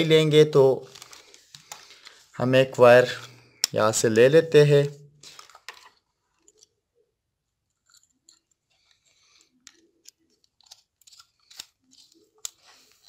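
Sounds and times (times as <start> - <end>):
wire clicks and scratches: 7.7 - 13.0.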